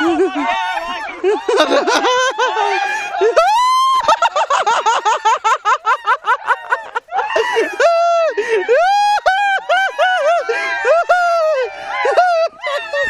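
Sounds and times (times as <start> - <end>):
men shouting: 0.0 - 5.2
high-pitched yell: 0.0 - 13.0
young men laughing: 0.0 - 13.0.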